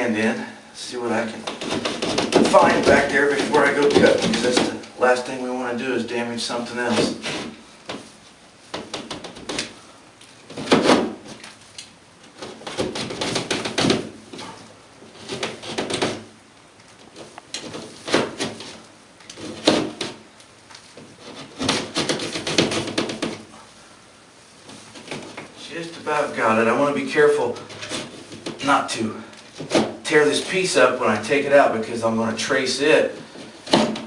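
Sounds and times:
knife scraping through drywall: 1.4s - 4.8s, 6.9s - 7.6s, 12.4s - 16.3s, 17.1s - 20.2s, 21.0s - 23.5s, 27.5s - 28.6s.

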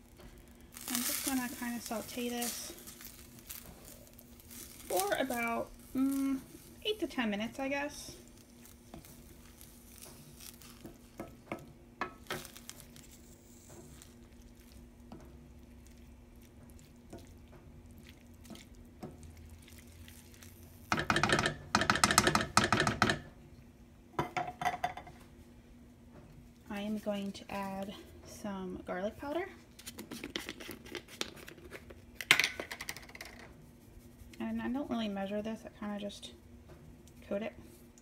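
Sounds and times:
wooden spoon scraping a pan: 0.2s - 14.4s.

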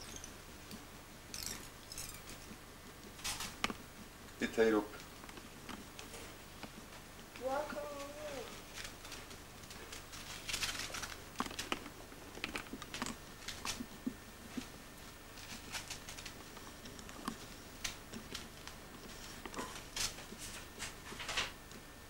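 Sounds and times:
paper rustling and crinkling: 7.4s - 21.6s.

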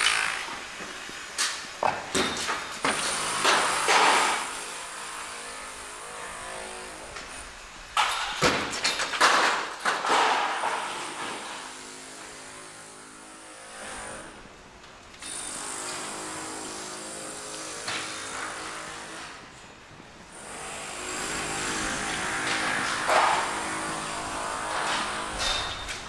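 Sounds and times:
banging and scraping: 8.0s - 11.8s, 21.2s - 26.0s.

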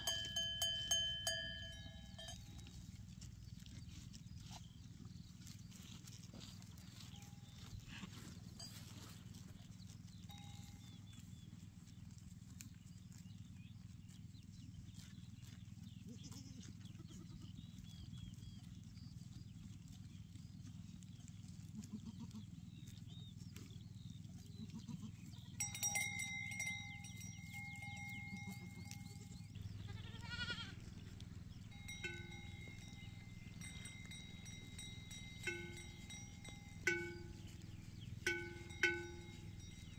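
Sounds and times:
sustained ringing tones: 0.0s - 2.8s, 25.6s - 39.9s
low steady rumble: 0.0s - 39.9s
goats bleating: 16.0s - 17.6s, 21.6s - 22.5s, 24.5s - 25.4s, 27.8s - 39.3s.

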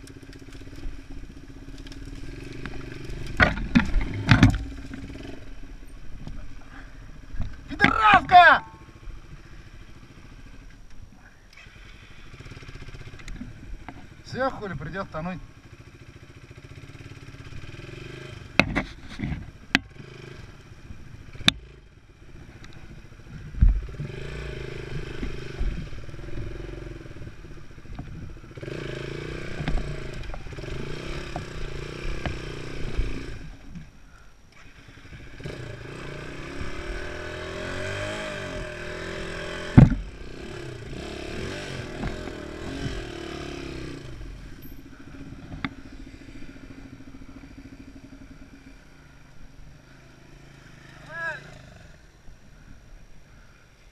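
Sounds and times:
motorcycle knocking over bumps: 0.0s - 6.4s, 18.4s - 20.1s, 21.2s - 33.9s, 36.3s - 48.7s
motorcycle engine revving: 0.0s - 53.7s.

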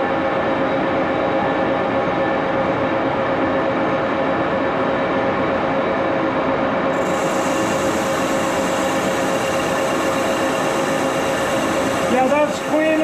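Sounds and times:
lathe gear whine: 6.9s - 13.0s.

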